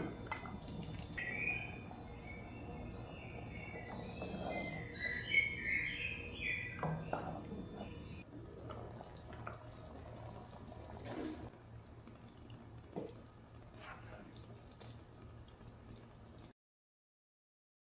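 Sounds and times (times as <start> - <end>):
sauce sloshing in pot: 0.0 - 1.6.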